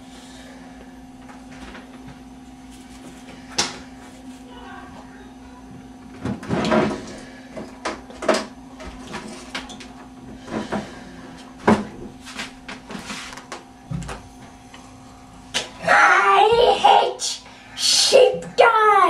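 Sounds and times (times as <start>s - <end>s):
steady low hum: 0.0s - 19.0s
knocks and rustles: 11.6s - 14.3s.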